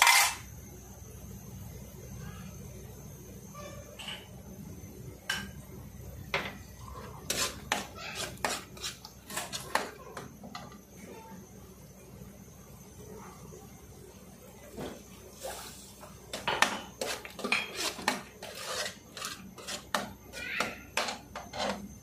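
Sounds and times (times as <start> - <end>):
ladle scraping and knocking in wok: 0.0 - 0.4, 7.2 - 9.9, 16.3 - 20.2, 21.0 - 21.9.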